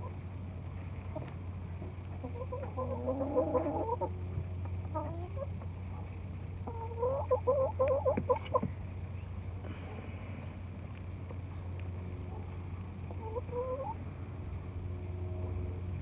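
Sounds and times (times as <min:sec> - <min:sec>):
steady low hum: 0:00.0 - 0:16.0
chickens clucking: 0:00.8 - 0:08.7, 0:12.3 - 0:14.0.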